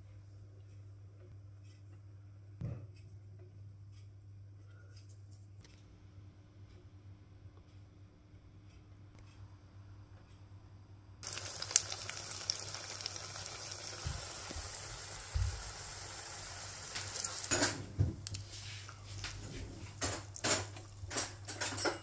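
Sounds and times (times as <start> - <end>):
egg sizzling in hot oil: 11.2 - 18.0.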